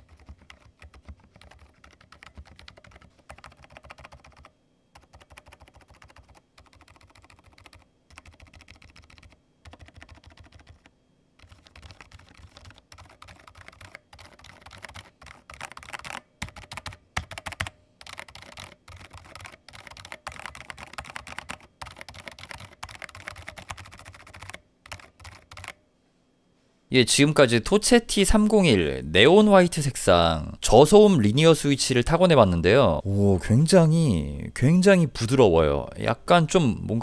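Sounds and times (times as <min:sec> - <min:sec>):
soft keyboard typing: 0:00.0 - 0:25.8.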